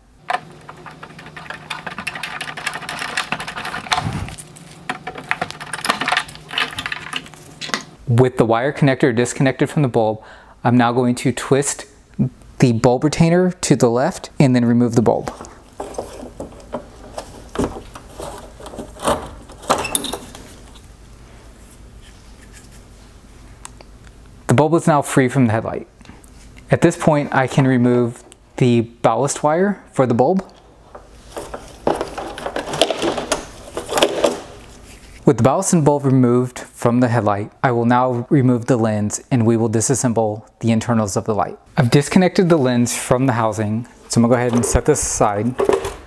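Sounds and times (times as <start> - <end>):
steady low hum: 0.0 - 46.0
bulb scraping out of housing: 15.4 - 20.6.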